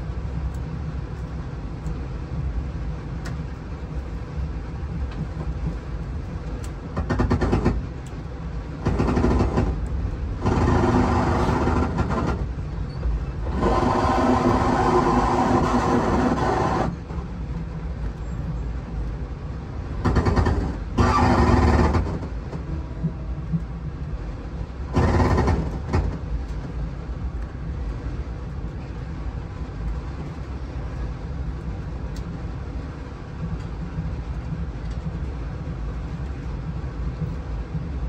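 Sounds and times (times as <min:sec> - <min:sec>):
moving vehicle rumble: 0:00.0 - 0:38.0
loud bursts of noise: 0:06.9 - 0:17.2, 0:19.9 - 0:23.4, 0:24.8 - 0:26.4.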